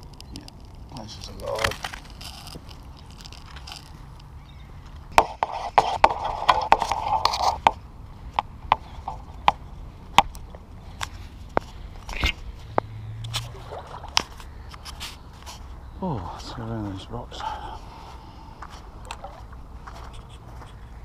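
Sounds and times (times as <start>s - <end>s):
rubbing scrape: 5.2s - 7.8s.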